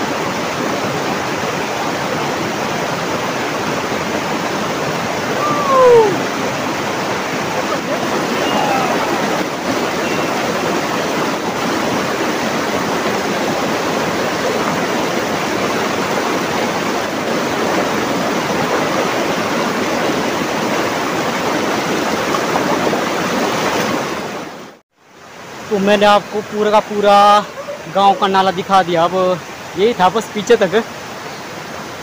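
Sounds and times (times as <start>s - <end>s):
stream rushing over boulders: 0.0s - 32.0s.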